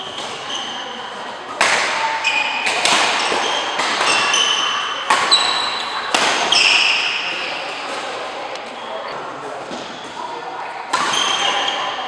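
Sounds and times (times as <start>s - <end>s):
sneaker squeaks on court: 0.0s - 1.0s, 2.0s - 7.7s, 11.0s - 12.0s
rackets striking shuttlecock: 2.6s - 7.2s.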